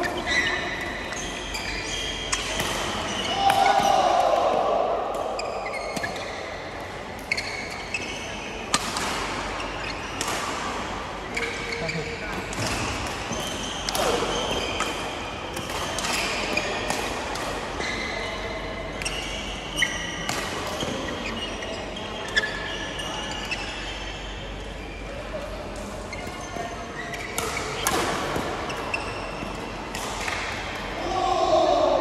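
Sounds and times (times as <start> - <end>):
shoes squeaking on court floor: 0.0 - 4.0, 5.3 - 10.4, 11.1 - 30.8
rackets striking shuttlecock: 0.0 - 4.1, 8.6 - 17.8, 25.7 - 31.0.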